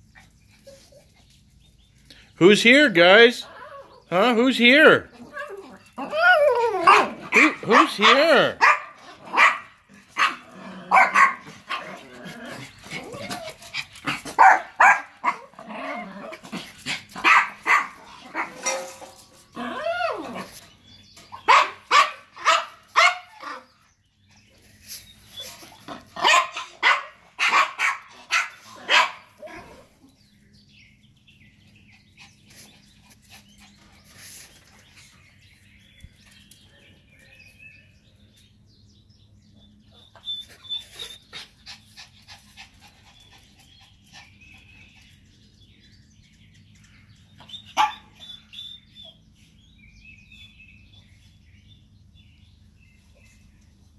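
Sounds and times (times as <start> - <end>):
small dogs yapping: 3.4 - 4.1, 5.1 - 23.9, 25.2 - 30.2, 47.3 - 49.3.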